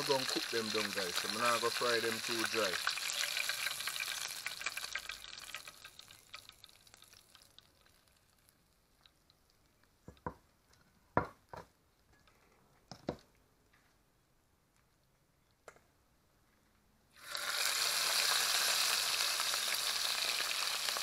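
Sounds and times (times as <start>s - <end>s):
fish frying in oil: 0.0s - 9.7s, 17.2s - 21.0s.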